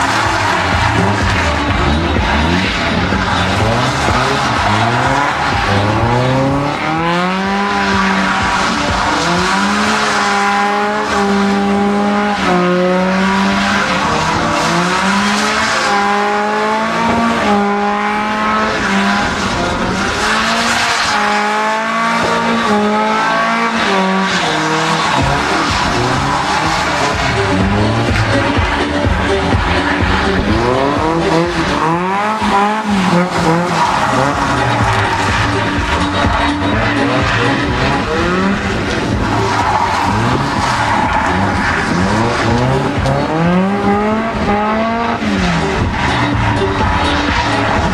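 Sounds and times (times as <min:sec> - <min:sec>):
car engine revving hard: 0:00.0 - 0:47.9
tyres squealing: 0:00.0 - 0:47.9.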